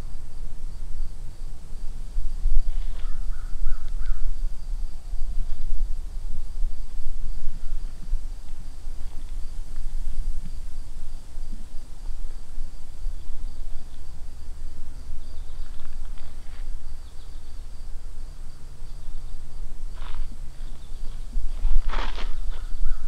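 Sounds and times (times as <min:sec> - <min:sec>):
low rumble: 0:00.0 - 0:21.9
pulsing insect trill: 0:00.0 - 0:23.0
bird call: 0:20.0 - 0:23.0.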